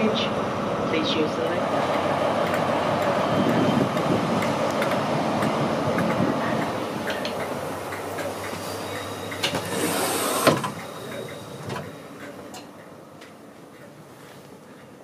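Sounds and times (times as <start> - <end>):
quiet hum of train interior: 0.0 - 15.0
train rumble: 0.0 - 15.0
sliding door opening: 9.4 - 10.8.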